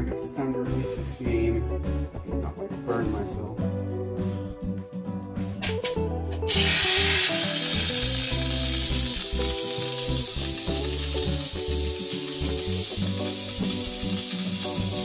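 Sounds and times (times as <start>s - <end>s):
pressure cooker steam hissing: 6.5s - 15.0s.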